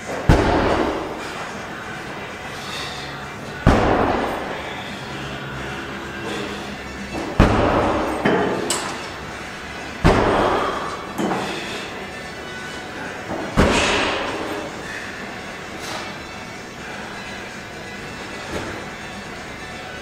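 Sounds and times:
gym weights banging down: 0:00.1 - 0:01.2, 0:03.6 - 0:04.6, 0:07.1 - 0:09.1, 0:10.0 - 0:11.5, 0:13.3 - 0:14.8.

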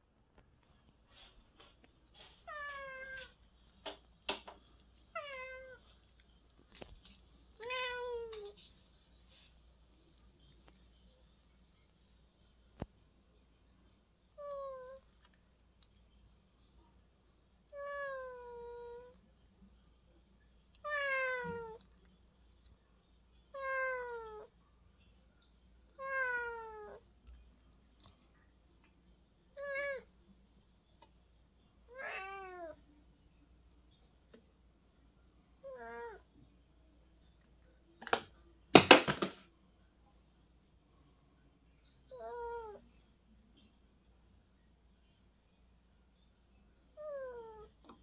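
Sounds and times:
cat meowing: 0:02.4 - 0:03.4, 0:05.1 - 0:05.8, 0:07.6 - 0:08.6, 0:17.7 - 0:19.2, 0:20.8 - 0:21.8, 0:23.5 - 0:24.5, 0:26.0 - 0:27.0, 0:31.9 - 0:32.8, 0:35.6 - 0:36.2, 0:42.1 - 0:42.8.

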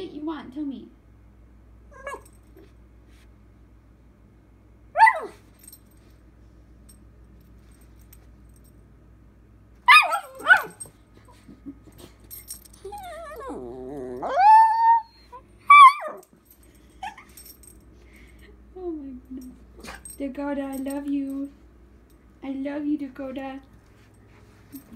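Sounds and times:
puppy yipping: 0:09.9 - 0:10.8, 0:14.2 - 0:16.2
puppy howl-like grumble: 0:12.8 - 0:15.2.

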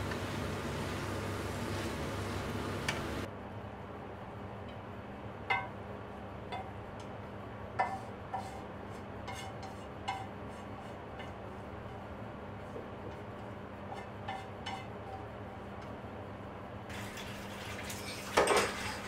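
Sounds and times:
low steady hum: 0:00.0 - 0:07.9.

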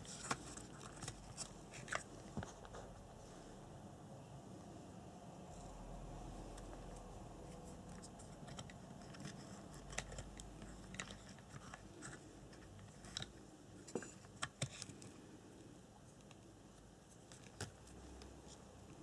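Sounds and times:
clicks and scratches of wires handled: 0:00.0 - 0:03.2, 0:06.5 - 0:15.2, 0:16.0 - 0:19.0.

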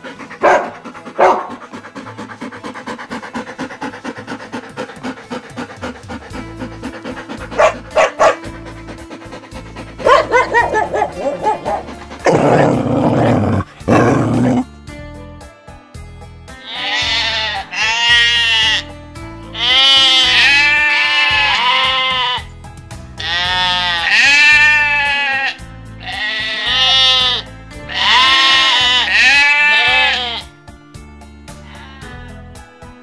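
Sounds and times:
background music: 0:00.0 - 0:33.0
sheep bleating: 0:16.6 - 0:18.9, 0:19.5 - 0:22.5, 0:23.2 - 0:30.5, 0:31.7 - 0:32.5.

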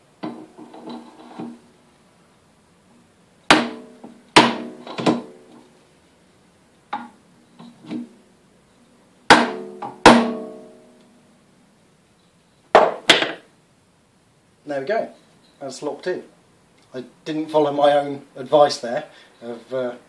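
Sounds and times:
wooden mallet striking metal chuck: 0:03.5 - 0:05.3, 0:09.3 - 0:10.7.

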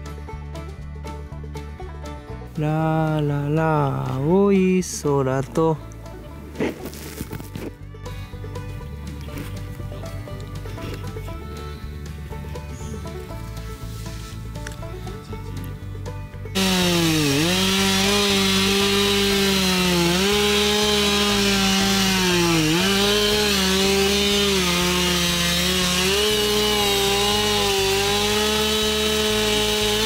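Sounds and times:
chainsaw cutting through wood: 0:16.5 - 0:30.0.

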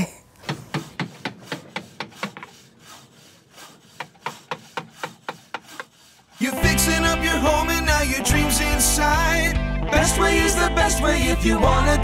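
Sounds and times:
short rasping strokes: 0:00.4 - 0:06.7.

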